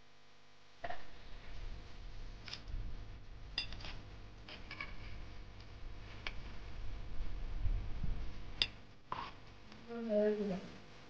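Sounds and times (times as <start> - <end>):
low rumble: 5.0 - 8.6.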